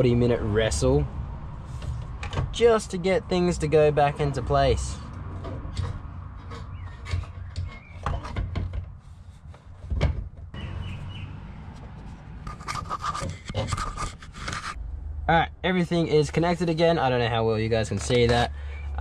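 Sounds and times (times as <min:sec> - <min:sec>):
hands rubbing and scraping: 0:11.8 - 0:14.8.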